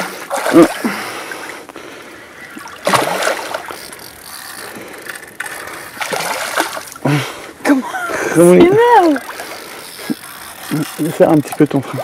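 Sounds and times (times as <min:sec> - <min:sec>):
fishing reel ratchet clicking: 0:03.6 - 0:06.0, 0:08.8 - 0:11.6.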